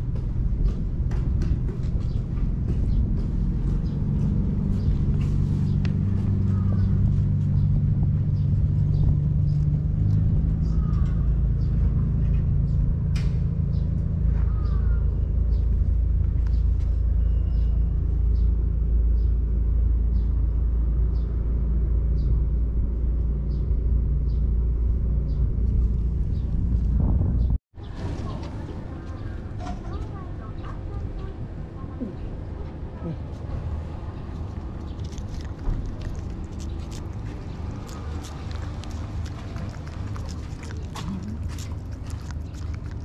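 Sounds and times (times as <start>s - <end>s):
engine idling: 0.0s - 27.2s.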